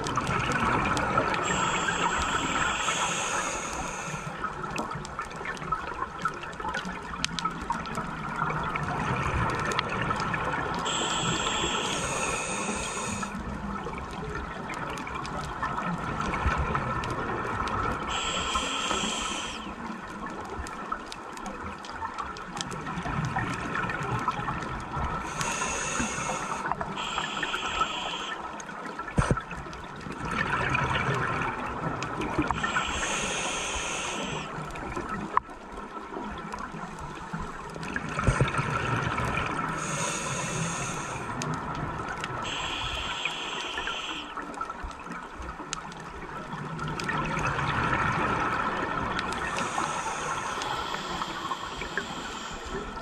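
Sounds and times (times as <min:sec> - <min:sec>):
regulator hissing inhalation: 0:01.4 - 0:04.4, 0:10.9 - 0:13.4, 0:18.1 - 0:19.8, 0:25.3 - 0:28.5, 0:32.5 - 0:34.6, 0:39.8 - 0:41.4, 0:42.5 - 0:44.4, 0:49.4 - 0:53.0.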